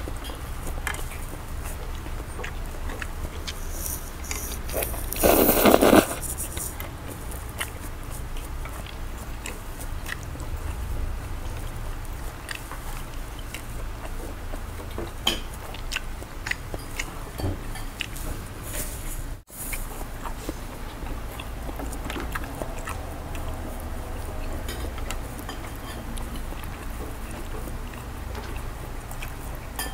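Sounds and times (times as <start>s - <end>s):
person chewing: 0.0s - 29.9s
person slurping noodles: 3.4s - 6.8s.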